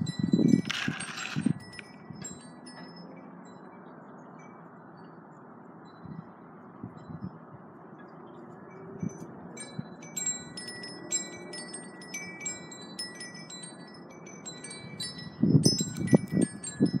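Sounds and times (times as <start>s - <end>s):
wind chimes ringing: 0.0s - 5.0s, 8.6s - 17.0s.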